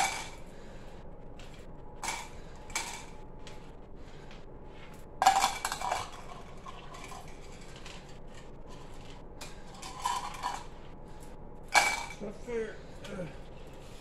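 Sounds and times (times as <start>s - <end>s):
small pieces rattling into cups: 0.0s - 0.4s, 2.0s - 3.2s, 5.2s - 10.8s.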